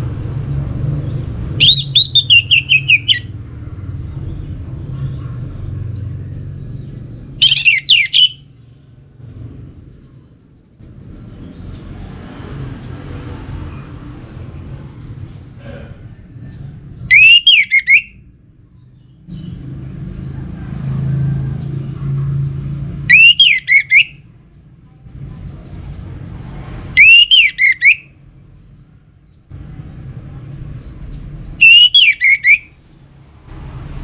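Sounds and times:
thrush singing whistled notes: 1.6s - 3.4s, 7.4s - 8.6s, 17.0s - 19.6s, 23.0s - 24.3s, 26.9s - 28.2s, 31.5s - 33.0s.

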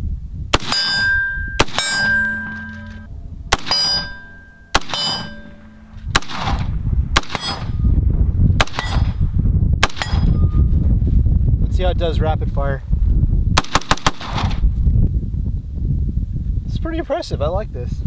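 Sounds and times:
rifle shots: 0.5s - 7.9s, 8.6s - 9.2s, 9.8s - 10.4s, 13.6s - 14.6s
metallic ring of steel targets: 0.6s - 8.0s, 8.6s - 10.8s.

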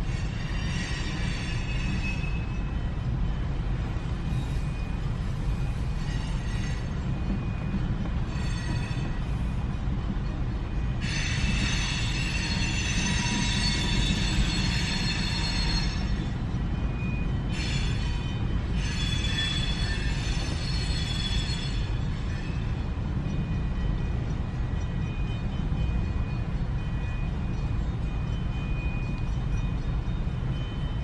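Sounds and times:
high-pitched wheel squealing: 0.0s - 2.7s, 5.7s - 9.6s, 11.0s - 16.3s, 17.5s - 22.8s
freight train rumbling: 0.0s - 31.0s.

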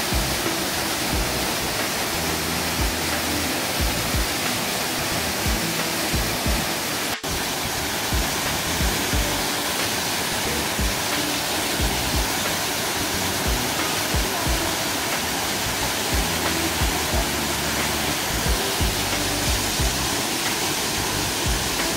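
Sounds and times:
waterfall rushing: 0.0s - 21.9s
soft low thumps: 1.1s - 1.6s, 3.8s - 4.4s, 5.4s - 6.7s, 8.1s - 9.4s.

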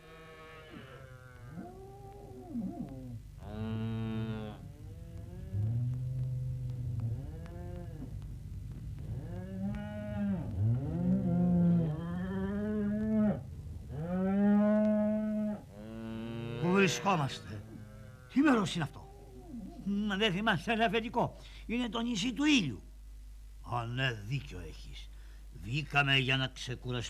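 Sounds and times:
cattle mooing: 0.0s - 6.0s, 9.1s - 18.6s.

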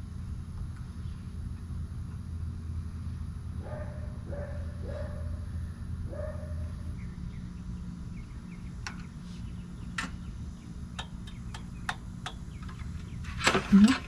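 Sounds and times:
steady low hum: 0.0s - 14.0s
clicks of engine controls: 10.9s - 14.0s.

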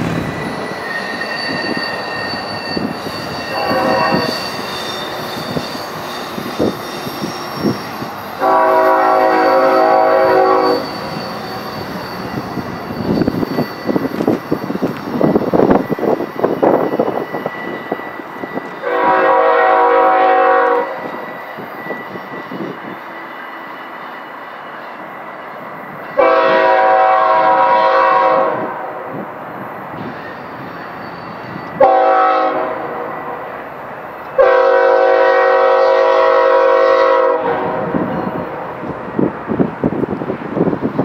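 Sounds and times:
low train rumble: 0.0s - 41.0s
locomotive air horn blasts: 3.4s - 4.4s, 8.4s - 11.5s, 18.8s - 21.1s, 26.2s - 29.1s, 31.8s - 33.5s, 34.4s - 38.2s.

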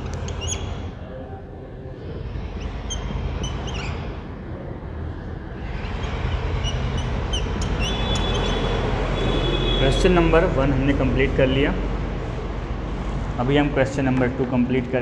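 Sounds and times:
whiteboard marker squeaking: 0.0s - 0.9s, 2.4s - 4.2s, 5.9s - 8.8s.

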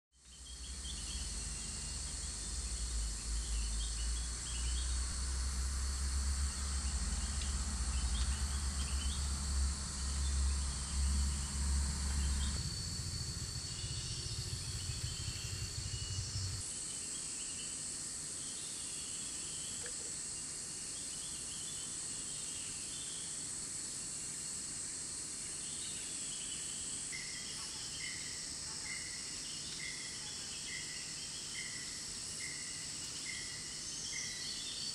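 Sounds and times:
insect chorus drone: 0.2s - 34.9s
low rumble: 1.0s - 16.6s.

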